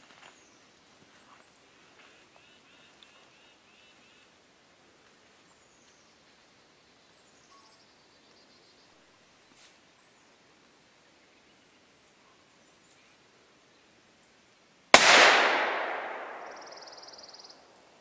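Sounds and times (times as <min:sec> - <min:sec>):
rifle shot echoing: 0:14.9 - 0:17.4.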